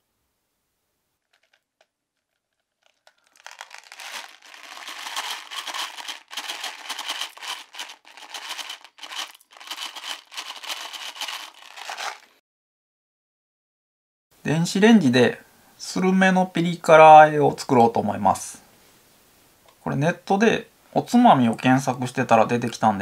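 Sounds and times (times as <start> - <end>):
crinkling and tearing: 1.2 - 12.4.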